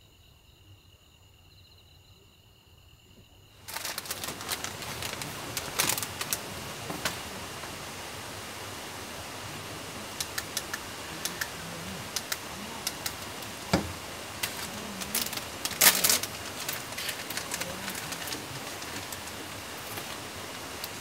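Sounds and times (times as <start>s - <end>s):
steady hiss: 0.0s - 21.0s
light clicks and ticks: 10.1s - 13.8s.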